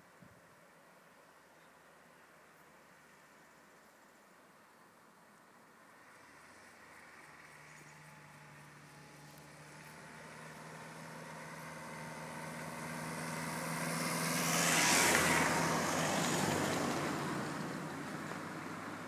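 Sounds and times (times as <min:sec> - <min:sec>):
cars driving past: 0:05.6 - 0:19.0.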